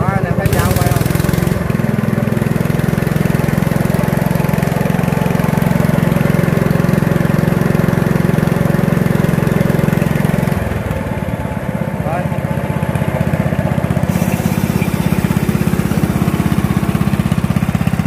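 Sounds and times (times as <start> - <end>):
ride-on mower engine running: 0.0 - 18.0.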